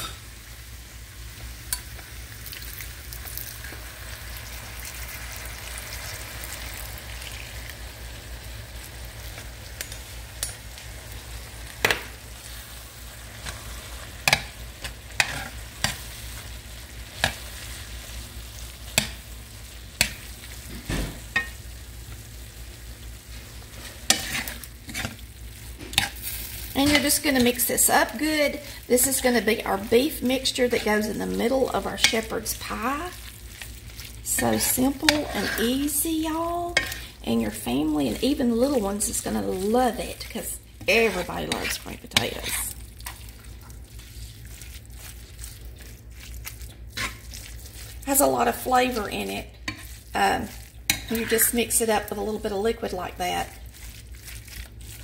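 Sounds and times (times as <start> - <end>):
meat sizzling in a skillet: 0.0 - 55.0
metal spoon scraping a pan: 13.4 - 16.3, 23.7 - 25.2, 25.8 - 27.8, 29.0 - 33.1, 34.3 - 39.7, 40.8 - 42.8, 46.9 - 49.0, 49.6 - 52.1.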